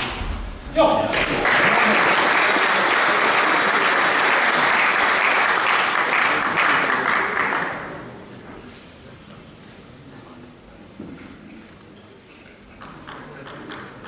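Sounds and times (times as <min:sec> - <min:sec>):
spectators applauding: 0:01.1 - 0:08.1.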